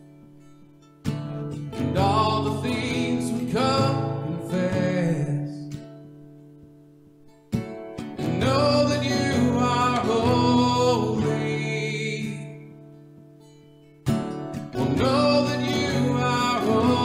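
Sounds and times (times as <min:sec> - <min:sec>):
acoustic guitar strumming: 0:00.0 - 0:17.0
man singing: 0:01.7 - 0:05.8, 0:08.2 - 0:12.8, 0:14.8 - 0:17.0.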